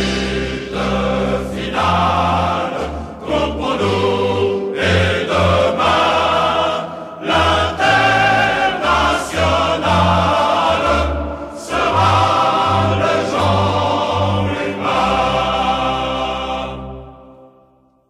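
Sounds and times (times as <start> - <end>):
deep bass accompaniment: 0.0 - 6.6
choir singing: 0.0 - 18.0.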